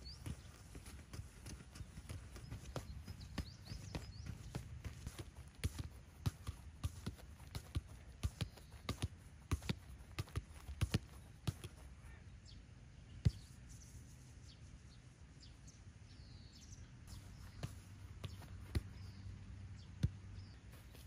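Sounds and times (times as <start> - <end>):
ball kicked thuds: 0.0 - 11.8, 17.1 - 19.2, 20.0 - 21.0
running feet and ball thuds: 0.0 - 12.2, 17.1 - 21.0
faint bird chirps: 1.8 - 4.6, 12.0 - 21.0.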